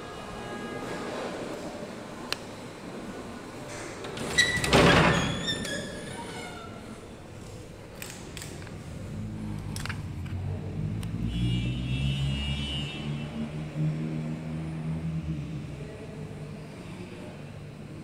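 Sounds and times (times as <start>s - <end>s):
vehicle engine rumble passing: 8.7s - 17.9s.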